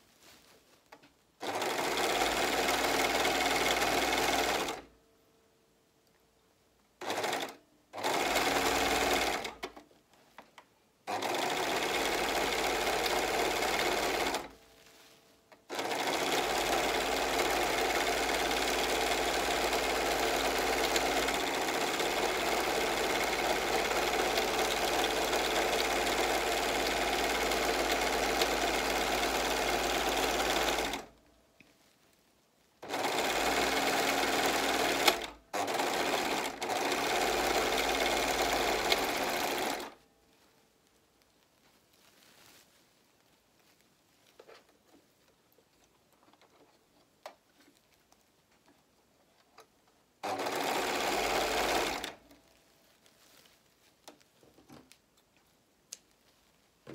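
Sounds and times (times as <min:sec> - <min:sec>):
overlock machine sewing: 0:01.4 - 0:04.9, 0:07.0 - 0:09.7, 0:11.1 - 0:14.5, 0:15.7 - 0:31.1, 0:32.8 - 0:40.0, 0:50.2 - 0:52.3.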